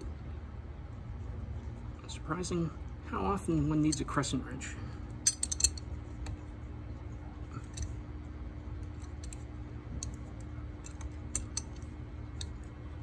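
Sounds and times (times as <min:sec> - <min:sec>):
steady low hum: 0:00.0 - 0:13.0
wrench clicking on metal pipe: 0:05.2 - 0:05.8, 0:10.8 - 0:12.6.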